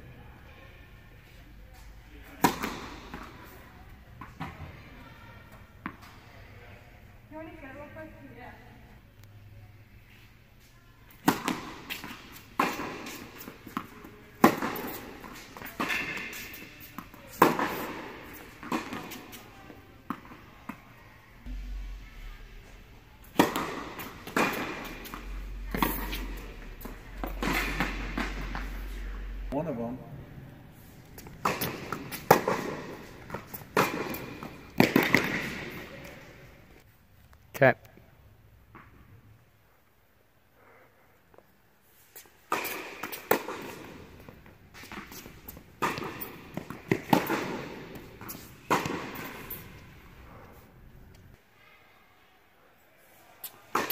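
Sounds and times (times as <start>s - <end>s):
tennis ball struck by rackets: 2.4s - 3.4s, 11.2s - 19.4s, 23.2s - 29.5s, 31.2s - 36.3s, 42.5s - 50.0s
tennis ball bouncing on hard court: 2.4s - 3.6s, 11.2s - 19.4s, 23.2s - 29.5s, 31.2s - 36.3s, 42.5s - 49.9s.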